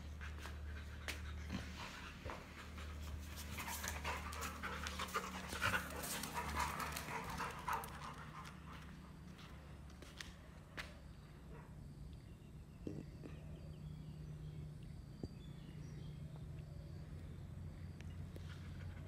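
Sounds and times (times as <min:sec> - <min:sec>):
dogs panting and snuffling: 0:00.0 - 0:11.8, 0:15.8 - 0:19.0
steady low hum: 0:00.0 - 0:19.0.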